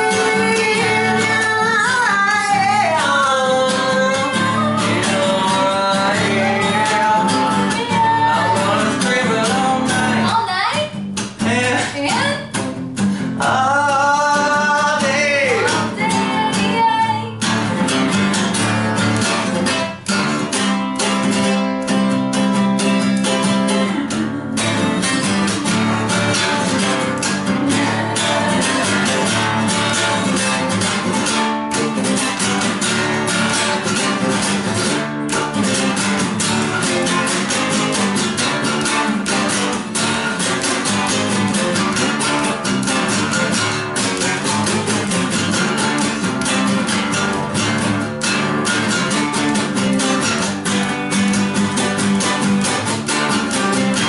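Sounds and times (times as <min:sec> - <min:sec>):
person singing: 0:00.0 - 0:10.4, 0:11.4 - 0:12.5, 0:13.4 - 0:17.4, 0:23.2 - 0:31.1
acoustic guitar strumming: 0:00.0 - 0:54.0.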